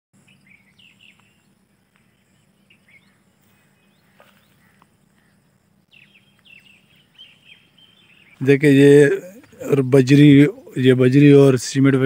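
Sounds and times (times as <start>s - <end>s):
faint bird chirps: 0.2s - 10.9s.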